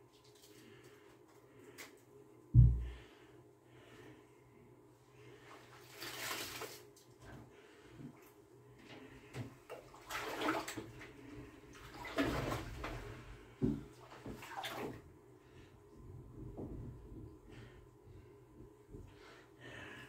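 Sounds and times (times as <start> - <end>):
bathwater splashing: 5.6 - 7.0, 9.7 - 13.2, 13.9 - 15.0.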